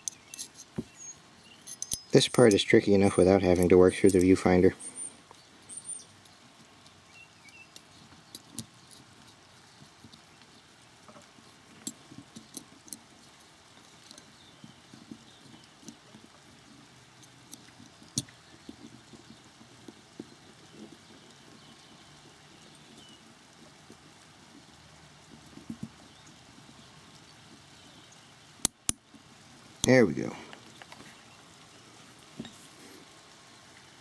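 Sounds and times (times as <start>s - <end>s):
small metal parts clicking: 0.0s - 4.4s, 5.3s - 19.4s.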